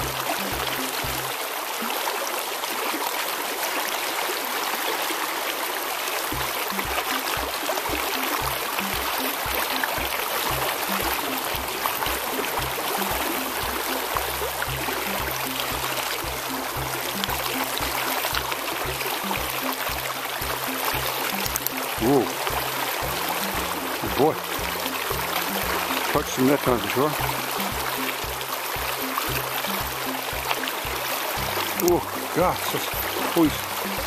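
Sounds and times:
background music with bass beat: 0.0 - 1.4, 6.3 - 34.0
river rushing over rocks: 0.0 - 34.0.

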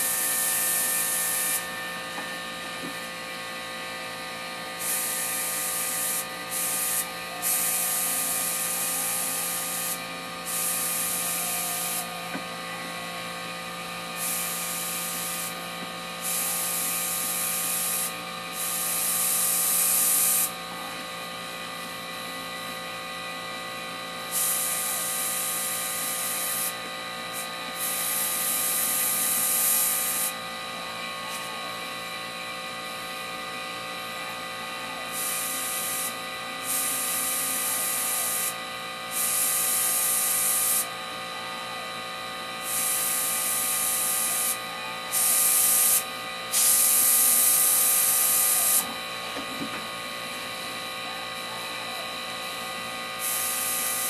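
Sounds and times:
airbrush spraying hiss: 0.0 - 1.6, 4.8 - 12.1, 14.2 - 15.6, 16.2 - 20.6, 24.3 - 26.7, 27.8 - 30.4, 35.1 - 40.9, 42.6 - 48.8, 53.2 - 54.0.

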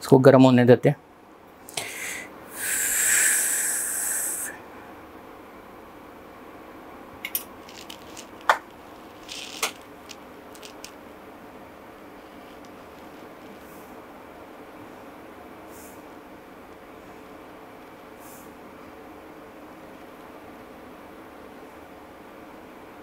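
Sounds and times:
loud hiss: 1.8 - 4.7.

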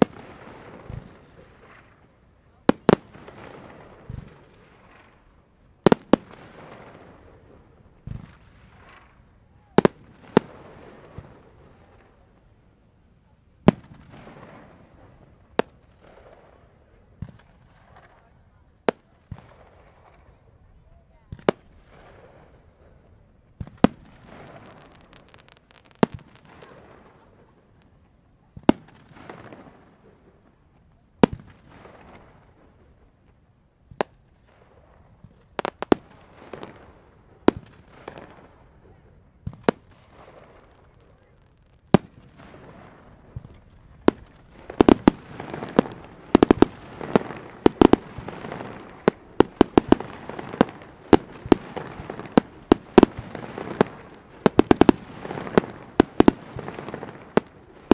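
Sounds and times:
fireworks booming: 39.4 - 57.9.

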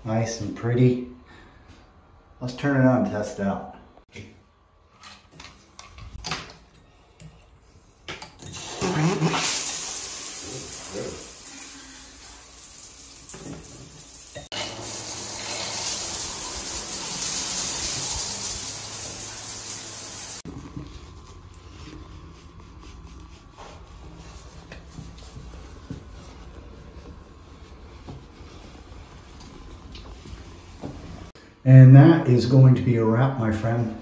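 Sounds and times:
shower spraying on tiled floor: 8.6 - 20.5.

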